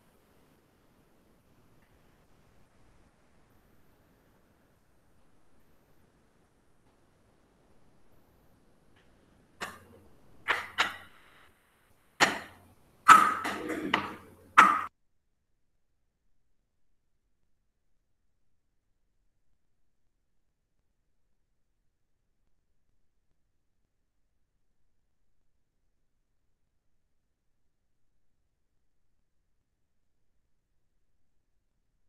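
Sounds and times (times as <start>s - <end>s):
sharp knocks and clatter: 9.0s - 11.4s, 12.2s - 14.9s
handling noise: 12.2s - 14.9s.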